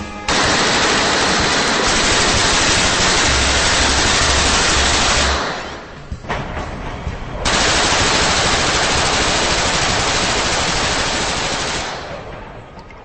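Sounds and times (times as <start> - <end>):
submachine gun automatic burst: 0.3 - 5.8, 7.5 - 12.4.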